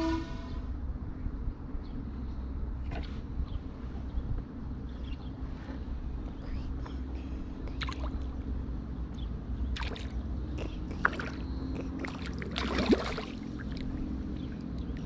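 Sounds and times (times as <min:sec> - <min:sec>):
steady low hum: 0:00.0 - 0:15.0
fish splashing at water surface: 0:09.8 - 0:10.2, 0:11.0 - 0:14.0.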